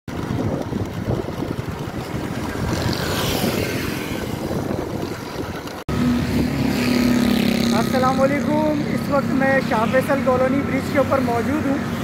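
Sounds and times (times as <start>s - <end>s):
wind buffeting microphone: 0.1s - 7.7s
motorcycles running: 0.1s - 12.0s.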